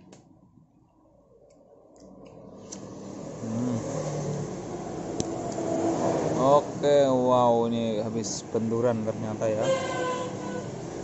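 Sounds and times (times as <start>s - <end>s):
low rumbling vehicle-like noise: 0.0s - 11.0s.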